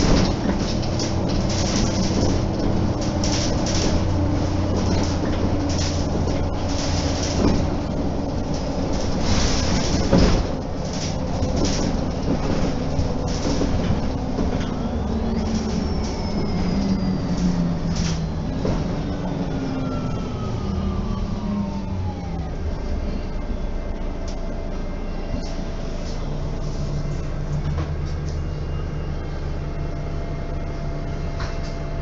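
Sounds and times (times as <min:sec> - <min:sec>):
body rattles: 0:00.0 - 0:16.9
bus bumps: 0:00.0 - 0:20.2
road noise: 0:00.0 - 0:31.6
bus engine droning: 0:00.0 - 0:32.0
faint whine gliding in pitch: 0:14.6 - 0:32.0.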